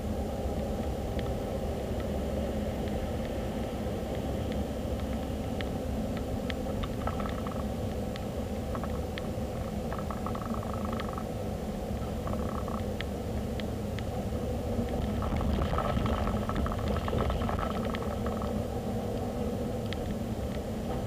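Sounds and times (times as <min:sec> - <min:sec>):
road and engine rumble: 0:00.0 - 0:21.0
light clicks and ticks: 0:00.5 - 0:01.4, 0:02.8 - 0:11.3, 0:14.8 - 0:21.0.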